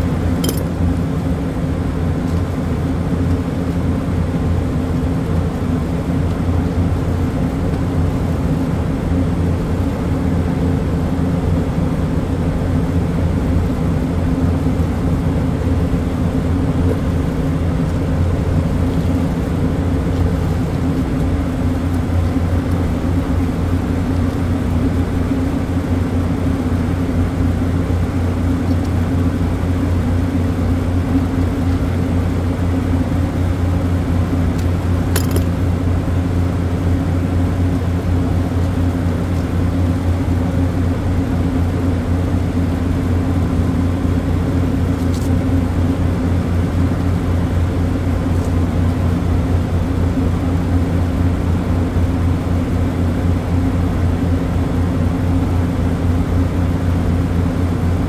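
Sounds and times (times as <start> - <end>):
compressor machine hum: 0.0 - 58.0
brief click: 0.4 - 0.8.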